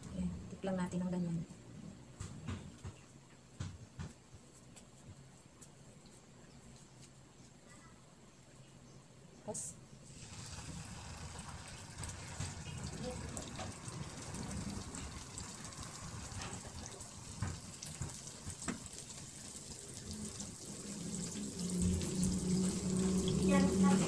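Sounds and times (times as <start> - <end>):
chicken sizzling in hot oil: 10.0 - 24.0
oil crackling and popping: 10.1 - 24.0.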